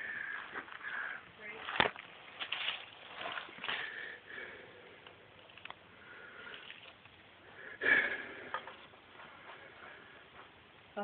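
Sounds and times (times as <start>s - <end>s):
person sniffing and breathing: 7.5s - 10.4s.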